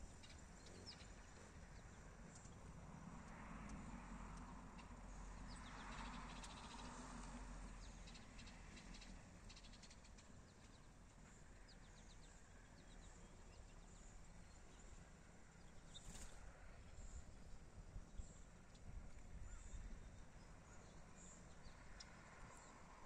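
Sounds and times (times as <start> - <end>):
quiet high chirps and ticks: 0.1 - 15.0, 20.4 - 22.7.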